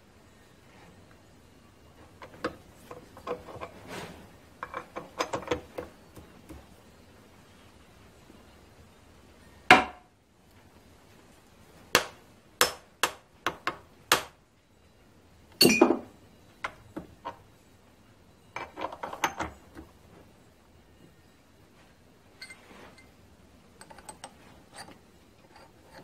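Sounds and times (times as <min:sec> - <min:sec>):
metal knocks and clinks of vise: 0:04.6 - 0:05.9, 0:15.6 - 0:17.4, 0:18.6 - 0:19.9, 0:22.4 - 0:23.1
metal blocks set down: 0:15.6 - 0:16.1.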